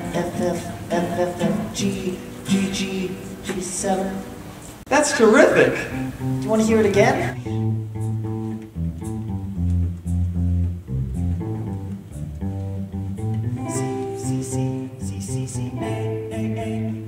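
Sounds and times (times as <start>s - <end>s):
guitar and bass chords: 5.4s - 17.0s.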